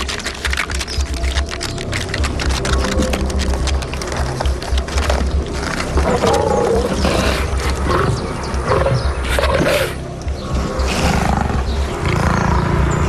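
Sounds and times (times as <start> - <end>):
big cats calling: 0.0 - 13.0.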